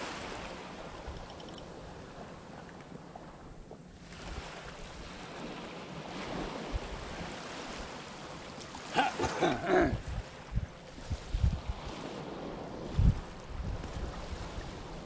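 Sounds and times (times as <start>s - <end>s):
sea washing on shore: 0.0s - 15.0s
wind gusting over microphone: 9.1s - 15.0s.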